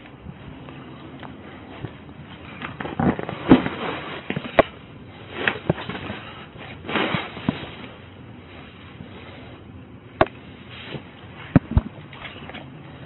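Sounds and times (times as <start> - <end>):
household items rustling and scraping: 1.7 - 9.6, 10.5 - 13.0.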